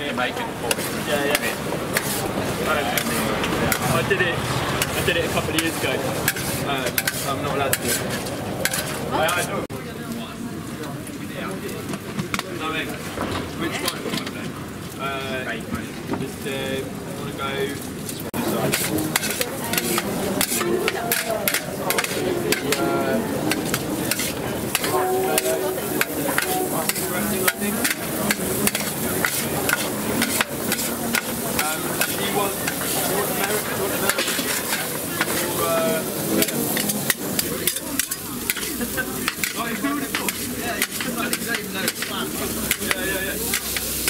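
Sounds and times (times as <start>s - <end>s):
food sizzling in a pan: 0.0s - 9.6s, 18.3s - 44.0s
utensil stirring and scraping: 0.6s - 4.0s, 4.8s - 9.6s, 18.4s - 44.0s
metal clicking against pan: 18.7s - 22.8s, 23.5s - 32.9s, 36.4s - 44.0s.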